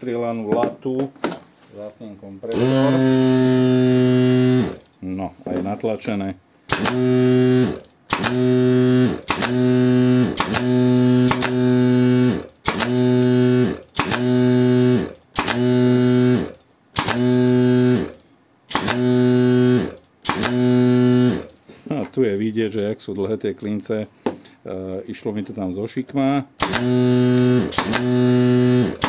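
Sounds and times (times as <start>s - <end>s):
air compressor motor running: 2.4s - 5.0s, 6.7s - 21.6s, 26.6s - 29.0s
pneumatic nail gun firing: 2.5s - 4.9s, 6.7s - 21.6s, 26.6s - 29.0s.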